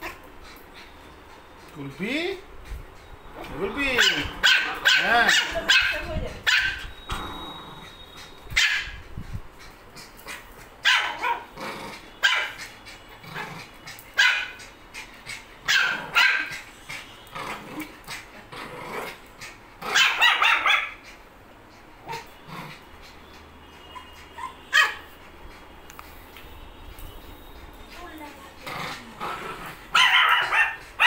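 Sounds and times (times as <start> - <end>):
dogs barking: 4.0 - 6.8, 8.6 - 9.0, 10.8 - 11.6, 12.2 - 12.7, 14.2 - 14.7, 15.6 - 16.6, 19.8 - 21.0, 23.7 - 25.1, 29.9 - 31.0.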